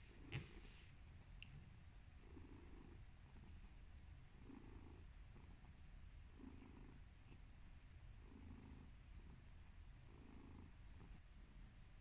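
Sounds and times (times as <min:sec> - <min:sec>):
cat purring: 0:02.1 - 0:11.4.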